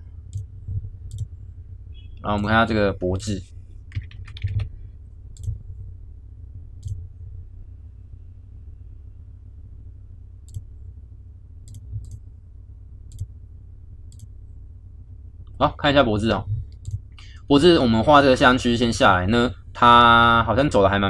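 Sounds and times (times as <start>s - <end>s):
steady low hum: 0.0s - 21.0s
computer mouse clicks: 1.1s - 1.3s, 3.9s - 4.7s, 5.4s - 5.6s, 6.8s - 7.0s, 11.7s - 12.2s.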